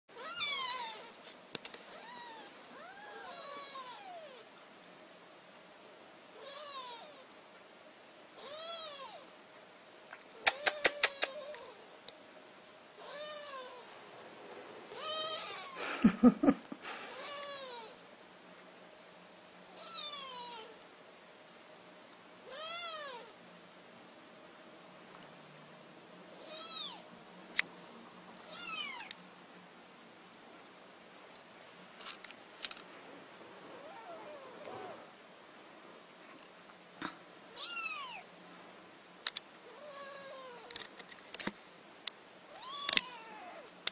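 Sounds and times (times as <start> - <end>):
cat meowing: 0.2 - 1.1, 1.9 - 4.4, 14.9 - 15.8, 19.8 - 20.8, 22.5 - 23.3, 26.4 - 27.0, 28.5 - 29.1, 37.5 - 38.3, 42.5 - 43.7.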